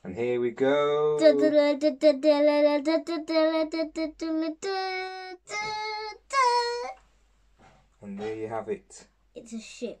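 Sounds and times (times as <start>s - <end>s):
child singing wordless notes: 1.1s - 7.0s.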